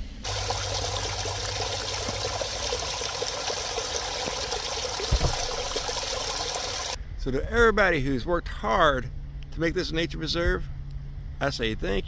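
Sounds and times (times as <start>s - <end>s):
water pouring over rocks: 0.2s - 7.0s
low bump: 4.2s - 6.4s.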